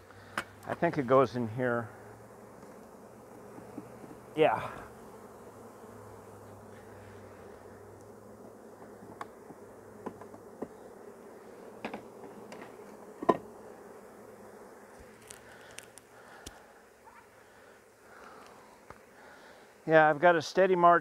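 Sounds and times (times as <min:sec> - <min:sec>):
honey bees buzzing: 0:00.0 - 0:21.0
wooden hive frames knocking: 0:03.3 - 0:04.3, 0:08.8 - 0:10.8, 0:11.8 - 0:13.6.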